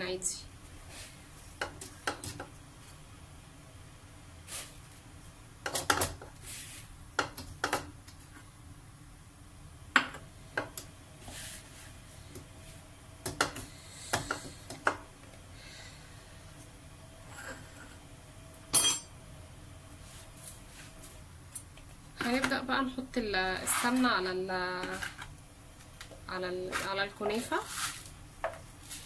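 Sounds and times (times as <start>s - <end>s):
metal tray and bowl clinking: 18.8s - 19.1s.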